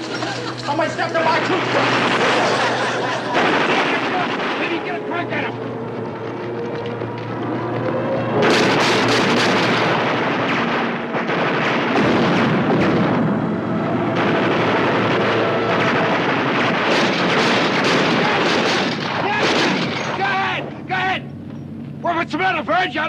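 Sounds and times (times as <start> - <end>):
explosions: 1.2 - 5.4, 8.4 - 20.2
rapid gunfire: 1.4 - 5.0, 8.4 - 13.5, 14.1 - 20.0.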